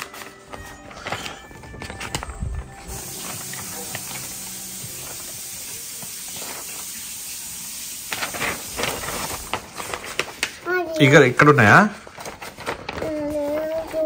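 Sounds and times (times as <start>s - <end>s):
steady even hiss: 2.7s - 10.4s.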